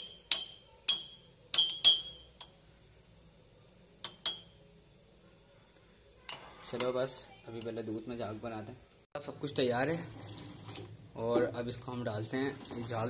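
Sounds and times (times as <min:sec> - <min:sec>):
spoon clinking against a cup: 0:00.0 - 0:02.6, 0:04.0 - 0:04.6.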